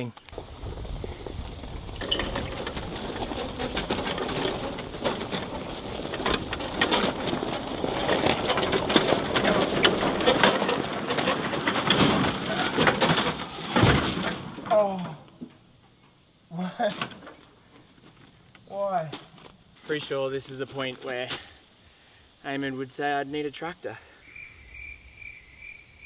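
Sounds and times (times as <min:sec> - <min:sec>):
gravel crunching under tyres: 0:00.0 - 0:15.7, 0:16.9 - 0:21.8
boots on gravel: 0:17.8 - 0:21.7.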